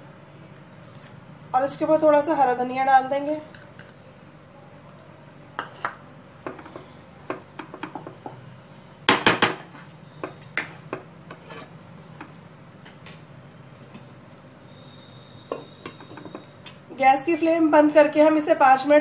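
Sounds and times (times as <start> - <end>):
wooden spatula scraping pan: 11.3 - 11.8.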